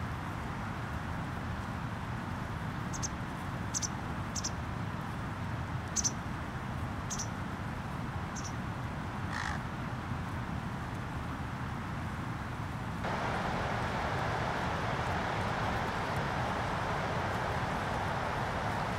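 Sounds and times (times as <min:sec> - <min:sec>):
small birds chirping: 0:06.0 - 0:06.2, 0:07.1 - 0:07.3, 0:08.4 - 0:08.6
low outdoor rumble: 0:13.0 - 0:18.9.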